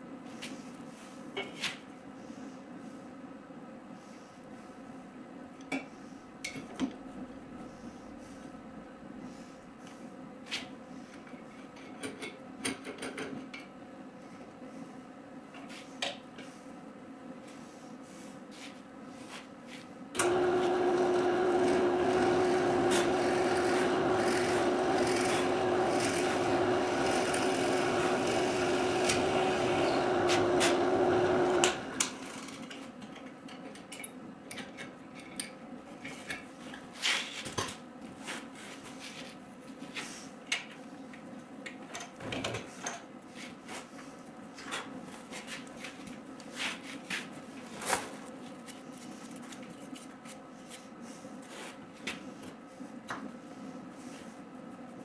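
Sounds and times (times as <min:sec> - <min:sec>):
drill press humming: 0:20.2 - 0:32.4
tools and workpiece clicking: 0:20.2 - 0:35.6.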